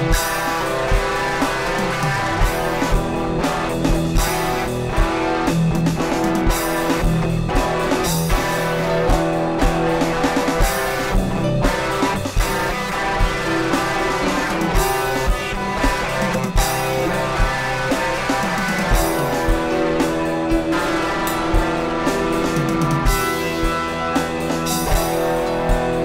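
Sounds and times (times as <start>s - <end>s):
drum kit: 0.0s - 26.0s
electric guitar leading: 0.0s - 26.0s.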